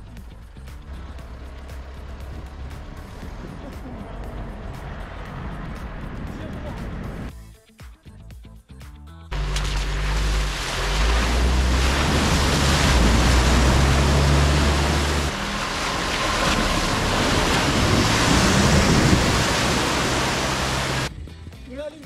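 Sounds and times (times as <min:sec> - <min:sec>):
low engine rumble: 0:00.0 - 0:07.3, 0:09.3 - 0:21.1
water splashing around wheels: 0:09.3 - 0:21.1.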